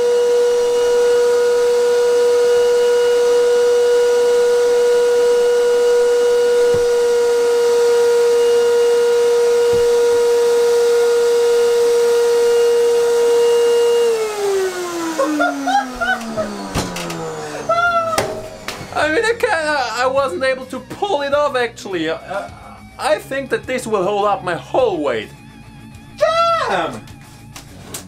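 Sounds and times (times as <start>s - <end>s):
vacuum cleaner motor whining: 0.0s - 20.6s.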